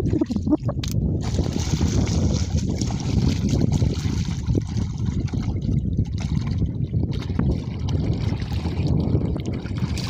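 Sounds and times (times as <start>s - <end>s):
muddy water sloshing and splashing: 0.0s - 10.0s
wind rumble on microphone: 0.0s - 10.0s.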